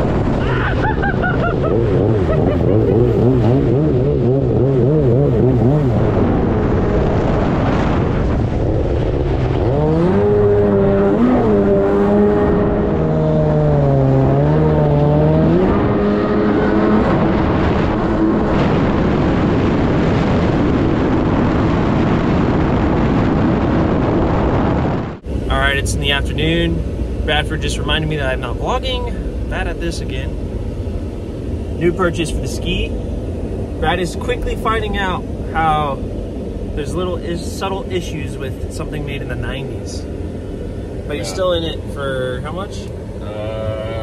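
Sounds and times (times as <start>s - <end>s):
steady rushing noise: 0.0s - 13.1s, 14.8s - 44.0s
jet ski engine revving: 1.6s - 8.0s.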